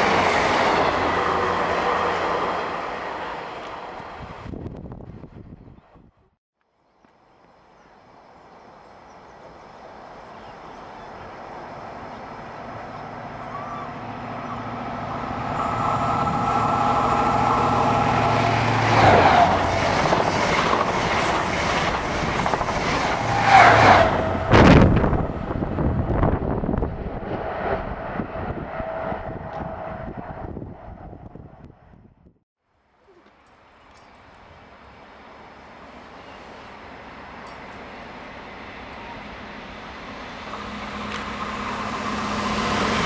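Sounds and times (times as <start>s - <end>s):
diesel train rushing past: 0.0s - 5.0s, 9.4s - 31.7s, 34.8s - 43.0s
wheels rattling over rail joints: 11.1s - 29.7s, 35.4s - 43.0s.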